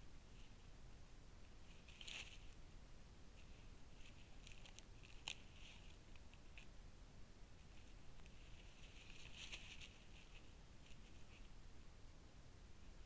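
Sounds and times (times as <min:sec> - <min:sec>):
rustling in dry leaves: 0:01.7 - 0:02.6, 0:08.3 - 0:11.4.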